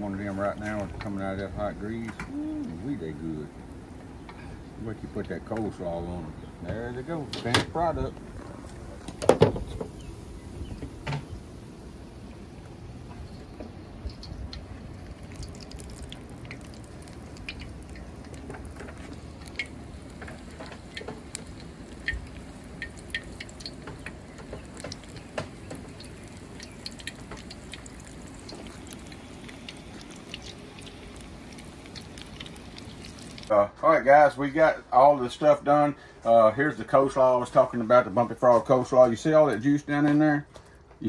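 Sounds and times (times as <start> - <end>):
batter frying in hot oil: 0.0 - 33.6.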